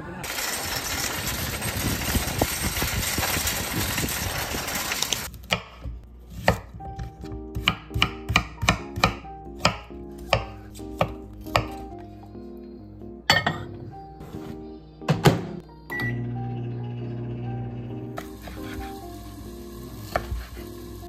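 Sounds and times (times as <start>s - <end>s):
outdoor hiss and rumble: 0.0s - 5.4s
knife chopping on wooden board: 5.5s - 11.8s
soft background music: 5.6s - 21.0s.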